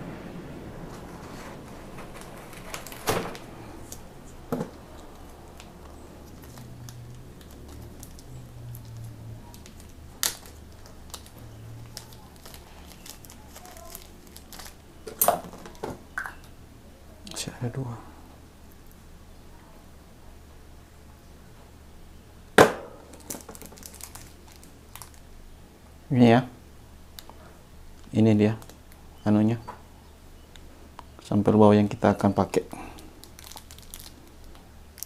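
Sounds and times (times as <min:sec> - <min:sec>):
packaging crackling: 0:00.9 - 0:16.5, 0:23.0 - 0:25.4, 0:32.5 - 0:35.0.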